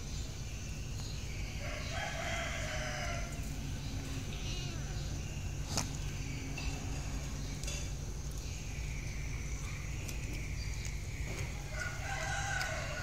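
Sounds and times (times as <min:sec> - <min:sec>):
animal call: 0:01.5 - 0:05.8.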